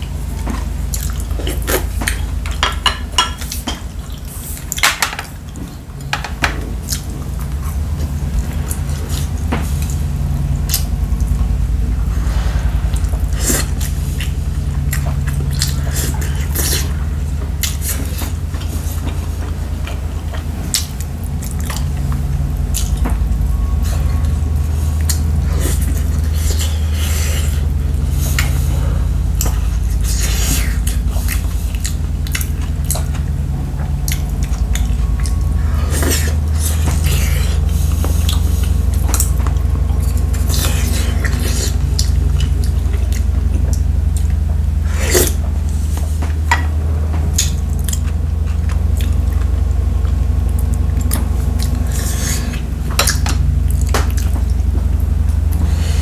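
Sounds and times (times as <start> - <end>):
chewing: 0.0 - 56.0
steady low hum: 0.0 - 56.0
utensils knocking on pot and bowls: 2.4 - 3.9.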